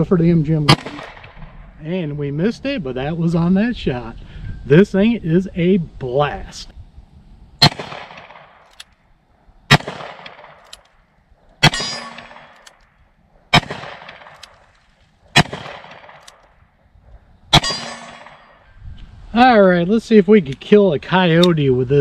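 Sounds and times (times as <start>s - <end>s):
revolver shots echoing: 0.7s - 1.5s, 7.6s - 8.6s, 9.7s - 10.6s, 11.6s - 12.6s, 13.5s - 14.4s, 15.3s - 16.3s, 17.5s - 18.6s.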